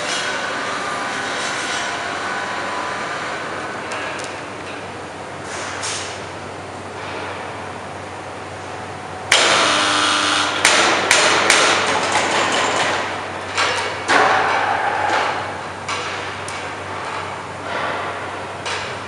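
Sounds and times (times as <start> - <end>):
sharp metal knocks: 10.6 - 13.0.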